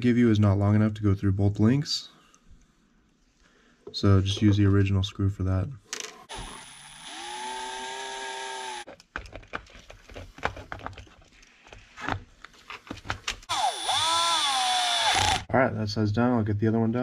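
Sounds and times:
electric screwdriver running: 6.3s - 8.8s, 13.5s - 15.4s.

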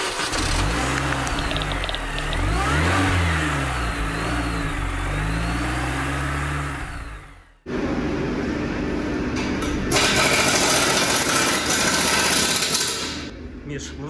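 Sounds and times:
car engine revving: 0.0s - 7.7s.

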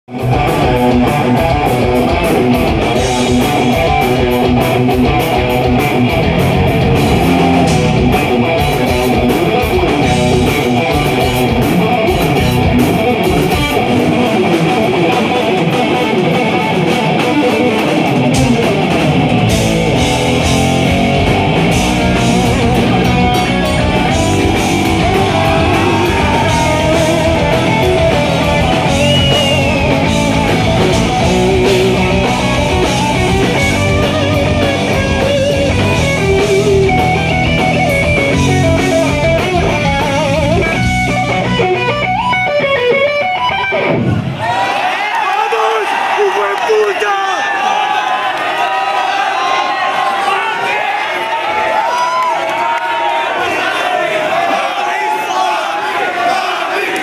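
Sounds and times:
electric guitar solo: 0.1s - 44.4s
heavy metal band playing: 0.1s - 48.1s.

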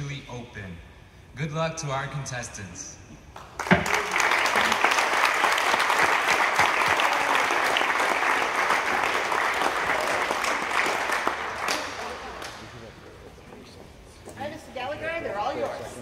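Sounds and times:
audience applauding: 3.4s - 12.9s.

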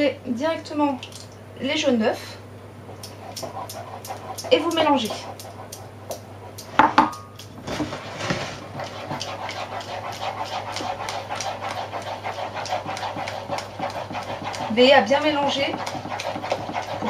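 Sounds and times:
wooden spoon stirring in saucepan: 3.0s - 6.8s, 7.4s - 17.0s
ceramic bowl knocking on counter: 6.8s - 7.2s.

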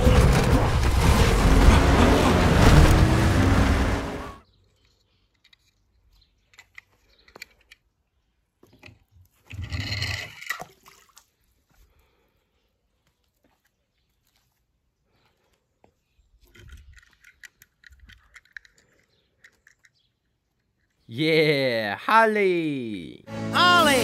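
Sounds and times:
loud rushing rumbling noise: 0.0s - 4.4s.

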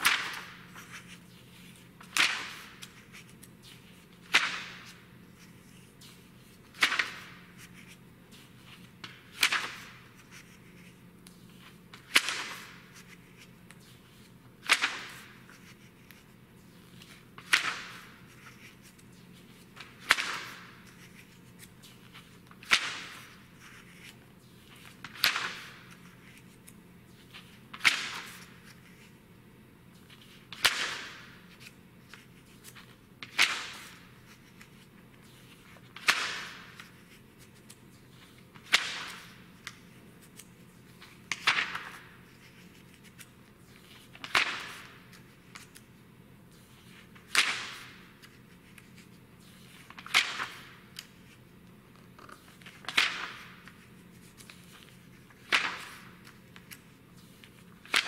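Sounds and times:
magazine pages turning: 0.0s - 29.1s, 30.0s - 45.9s, 46.5s - 58.0s.

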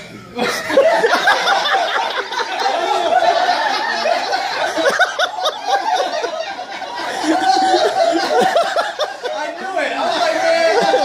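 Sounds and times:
people laughing: 0.2s - 11.0s.

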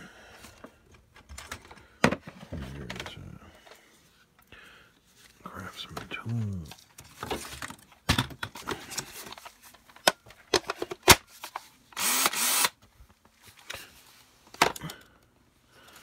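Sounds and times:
plastic battery packs clattering: 6.8s - 11.6s.

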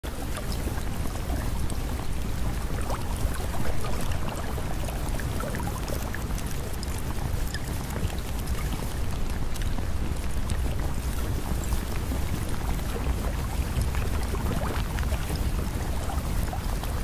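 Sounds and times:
rushing water: 0.1s - 17.0s.

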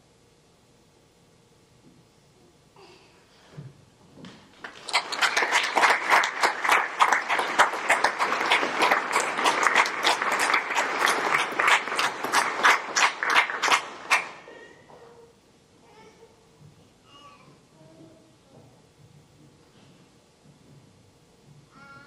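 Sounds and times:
audience applauding: 4.6s - 14.6s.

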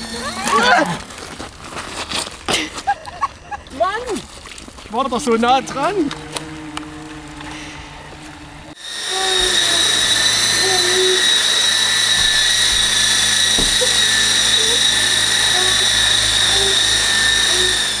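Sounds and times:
rc helicopter rotors whining: 0.0s - 1.4s, 5.0s - 18.0s.

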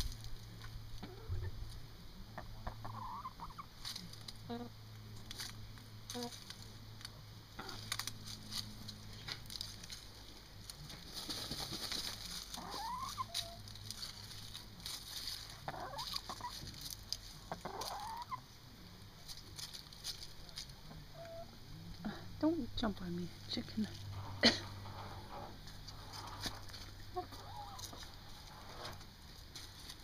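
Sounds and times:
hen clucking: 1.0s - 1.6s, 2.2s - 4.8s, 7.6s - 8.0s, 10.8s - 18.6s, 20.7s - 29.1s
dirt scratching and scattering: 5.2s - 17.9s
hen calling: 12.6s - 13.6s, 17.5s - 18.4s, 27.1s - 28.2s.

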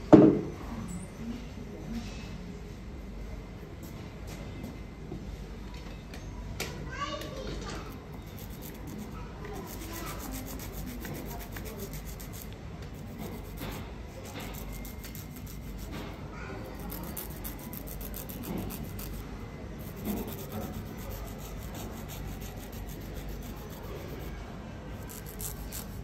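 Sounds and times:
nail file rubbing: 8.2s - 16.1s, 16.7s - 24.3s, 25.0s - 26.0s.

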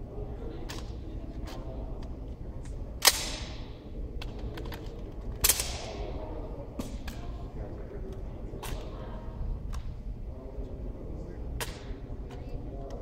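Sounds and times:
wooden rifle smacks echoing: 3.0s - 3.7s.

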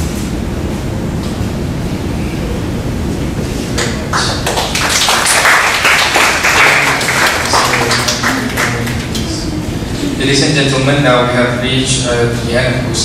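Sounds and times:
low room hum: 0.0s - 13.0s
audience clapping: 3.8s - 9.5s.

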